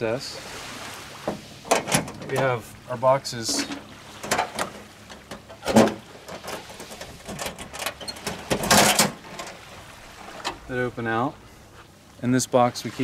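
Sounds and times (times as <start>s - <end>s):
metal lid clattering on chains: 3.4s - 4.6s, 5.3s - 9.5s.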